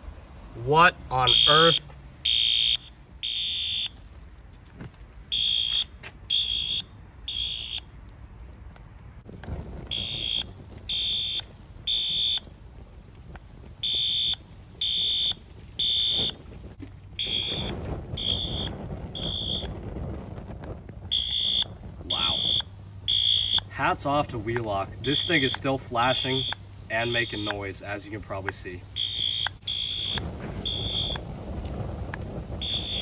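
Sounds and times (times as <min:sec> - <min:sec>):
flames rushing: 0:00.0 - 0:33.0
fire alarm horn beeping: 0:01.1 - 0:04.0, 0:05.3 - 0:07.9, 0:09.9 - 0:12.4, 0:13.8 - 0:16.4, 0:17.2 - 0:19.7, 0:21.1 - 0:23.8, 0:25.0 - 0:27.6, 0:29.0 - 0:31.2, 0:32.6 - 0:33.0.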